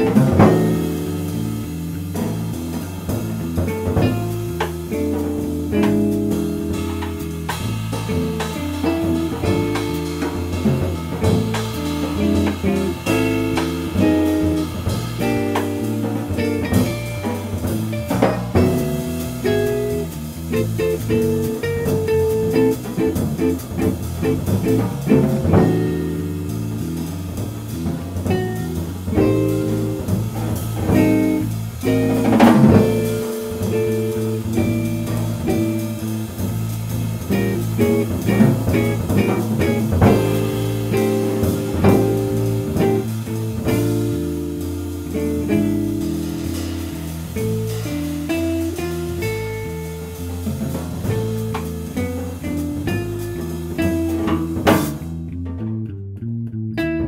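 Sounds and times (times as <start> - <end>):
electric guitar: 0.0 - 55.0
ringing drum kit accent: 0.0 - 55.9
jazz trio playing: 0.0 - 57.0.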